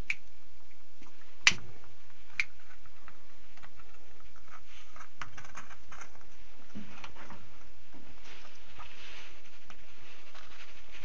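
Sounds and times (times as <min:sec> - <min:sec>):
sharp clicks: 0:00.0 - 0:00.3.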